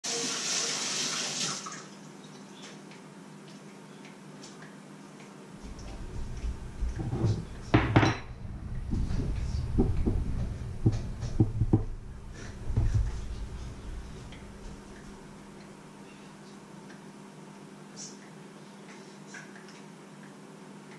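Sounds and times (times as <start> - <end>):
metal kitchenware clattering: 6.4 - 8.4.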